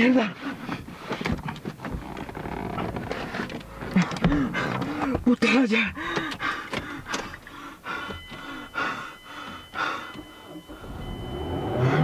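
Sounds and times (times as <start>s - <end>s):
man gasping and panting: 3.8s - 10.9s.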